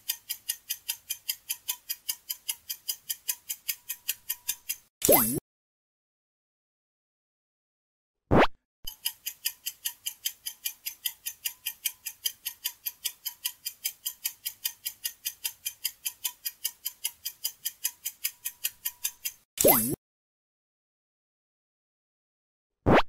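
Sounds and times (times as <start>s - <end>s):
ticking clock countdown: 0.0s - 5.4s, 8.9s - 20.0s.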